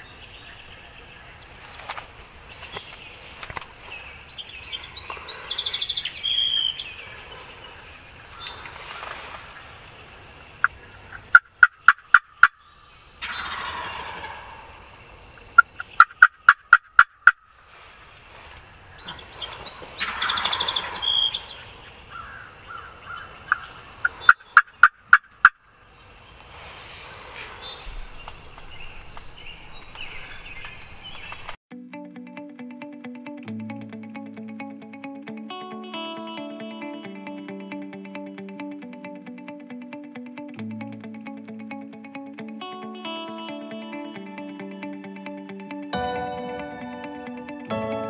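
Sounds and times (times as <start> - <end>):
turkeys gobbling: 13.2 - 14.9, 20.0 - 21.6.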